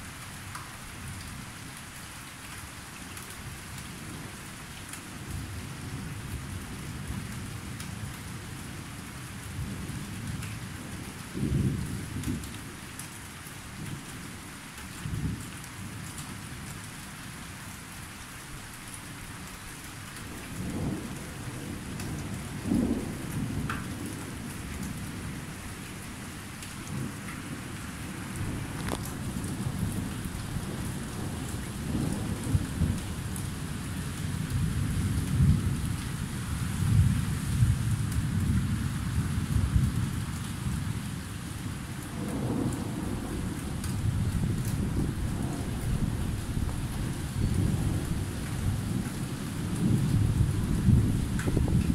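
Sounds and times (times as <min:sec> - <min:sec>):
steady rain falling: 0:00.0 - 0:51.9
low rolls of thunder: 0:11.0 - 0:12.5, 0:20.3 - 0:26.0, 0:26.8 - 0:51.9.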